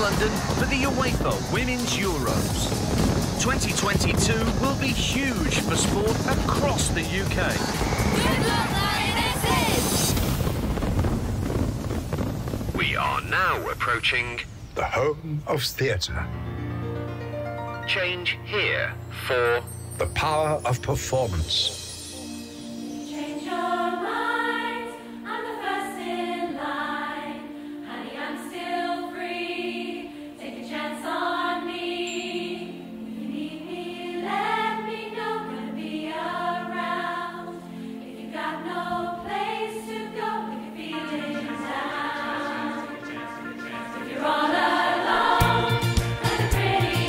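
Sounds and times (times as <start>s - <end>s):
mixed choir singing: 0.0s - 3.4s, 4.5s - 10.2s, 23.0s - 47.0s.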